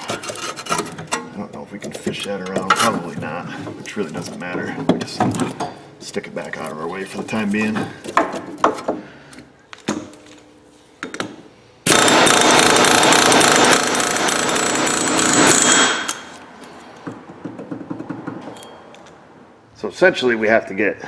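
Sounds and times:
pneumatic air hammer rattling: 11.8 - 16.8.

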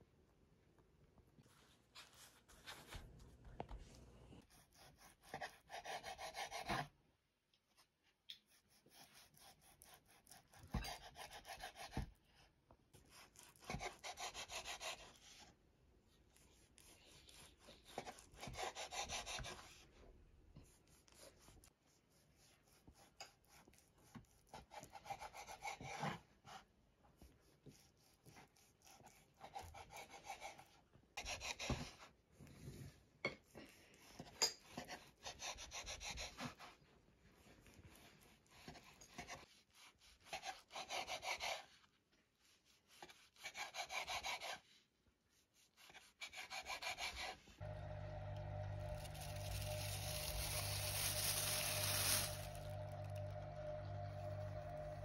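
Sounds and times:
rubbing on a hard surface: 13.0 - 20.0, 33.6 - 47.6, 49.0 - 52.8.

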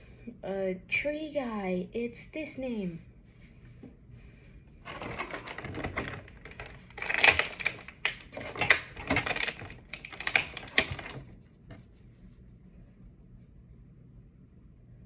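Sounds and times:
plastic packaging crinkling: 4.8 - 11.8.

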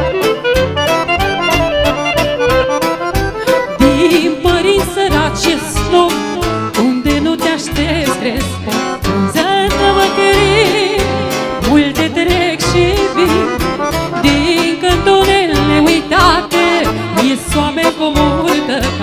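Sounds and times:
accordion: 0.0 - 19.0
clarinet: 0.0 - 19.0.

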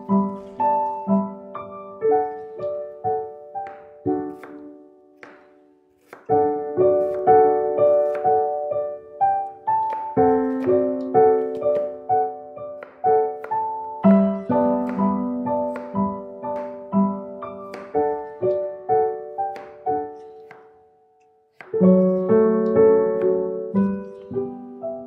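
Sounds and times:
gentle piano melody: 0.0 - 25.0.

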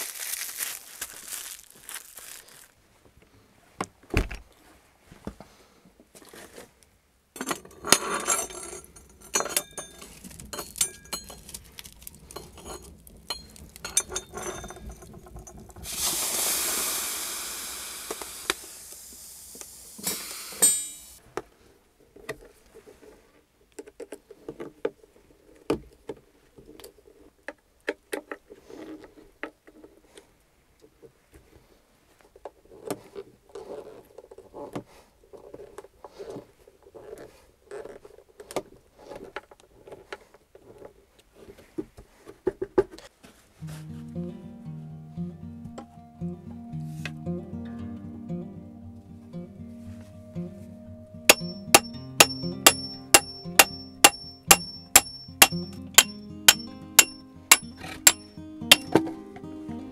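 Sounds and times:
metal pot clinks and knocks: 7.4 - 11.6, 12.3 - 15.6, 51.3 - 59.0
loud hiss: 15.8 - 21.2.

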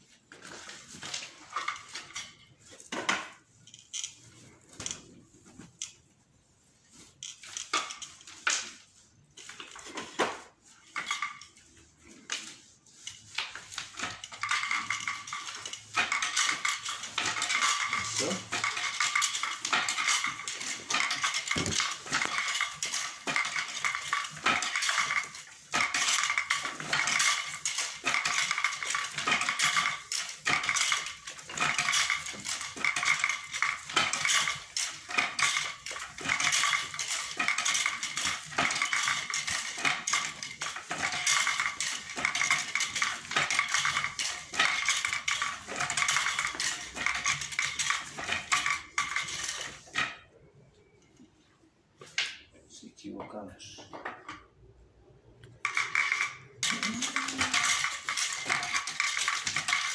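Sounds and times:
wooden loom clattering: 0.4 - 6.0, 6.9 - 50.4, 55.5 - 59.9.

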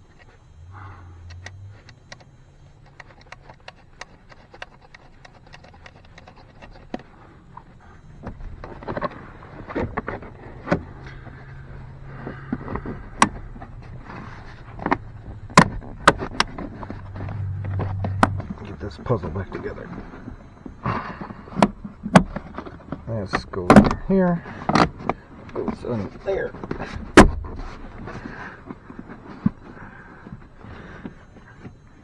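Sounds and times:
low steady hum: 0.0 - 32.0
clicks of cables and plastic trim: 1.2 - 7.1.

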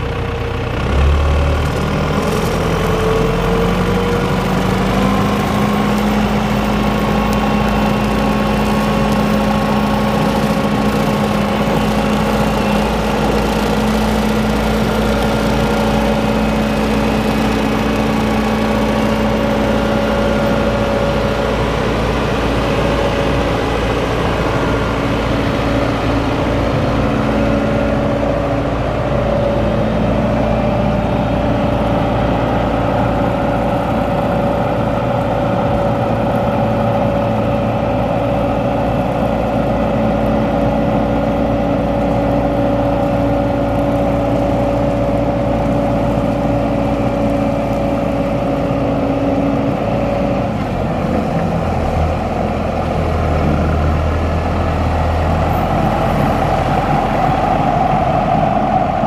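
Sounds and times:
tractor diesel engine running: 0.0 - 59.0
steady whine: 52.2 - 59.0.

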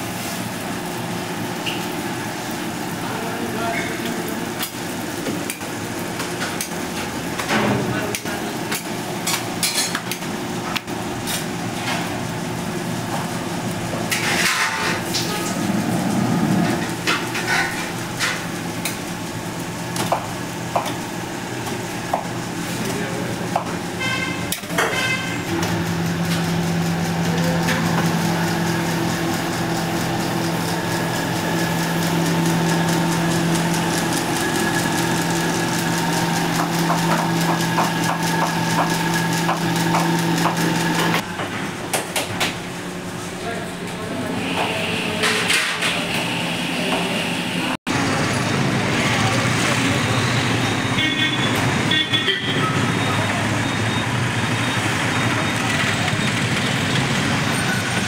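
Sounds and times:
food frying: 0.0 - 41.2
steady mechanical hum: 0.0 - 58.0
metal pots and utensils clanking: 6.3 - 10.2, 14.0 - 15.6, 16.6 - 19.0.

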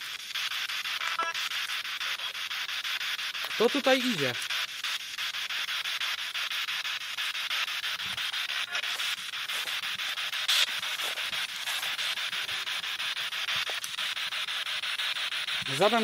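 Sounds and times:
pulsing radio static: 0.0 - 16.0.

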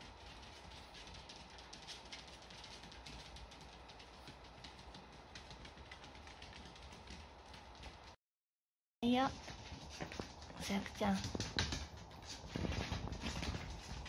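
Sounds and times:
rapid crackling clicks: 0.0 - 8.2.

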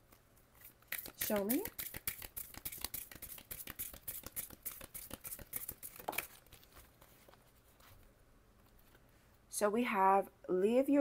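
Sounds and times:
cards being shuffled: 0.1 - 8.0.

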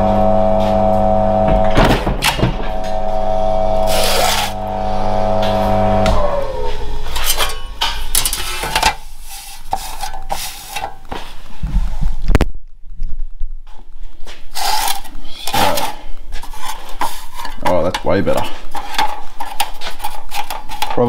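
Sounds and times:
electric motor humming: 0.0 - 7.2
blade shearing sheet metal: 0.0 - 11.0
metallic clanks and knocks: 7.0 - 9.0.

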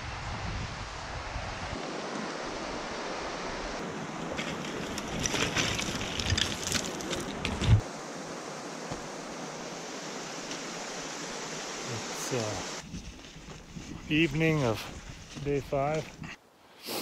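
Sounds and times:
creek rushing: 0.9 - 16.0
boots crunching on scree: 4.3 - 7.8, 12.4 - 16.4
sliding stones clicking: 4.5 - 7.8.

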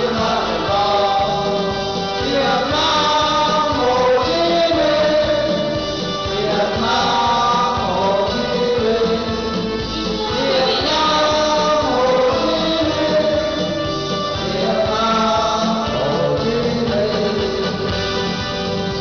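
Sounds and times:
men singing through a pa: 0.0 - 18.0
steady beat accompaniment: 0.0 - 19.0.

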